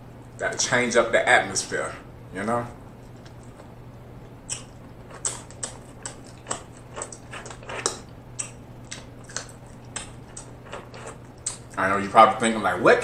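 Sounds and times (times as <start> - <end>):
steady low hum: 0.0 - 13.0
wet eating smacks and sucking clicks: 4.5 - 11.8.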